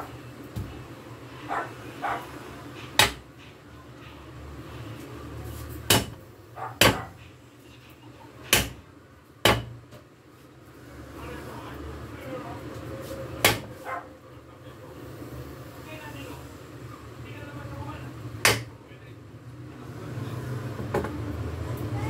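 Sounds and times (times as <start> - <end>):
cleaver striking chopping board: 3.0 - 3.2, 5.9 - 6.2, 6.8 - 7.1, 8.5 - 8.8, 9.5 - 9.8, 13.4 - 13.7, 18.4 - 18.7.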